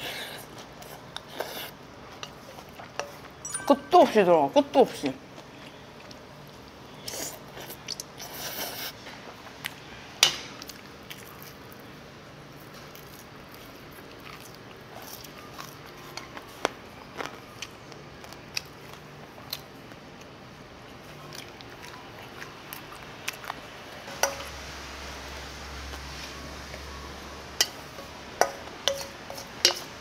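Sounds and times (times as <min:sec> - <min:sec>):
person chewing food: 0:12.6 - 0:20.4, 0:21.0 - 0:24.0
utensils clicking on dishes: 0:24.1 - 0:24.5, 0:27.6 - 0:30.0.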